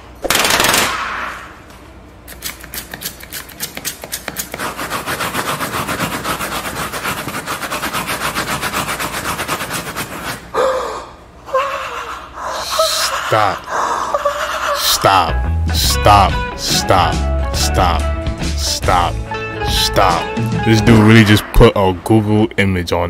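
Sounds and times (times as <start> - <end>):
frantic scrubbing on gritty surface: 4.4 - 10.4.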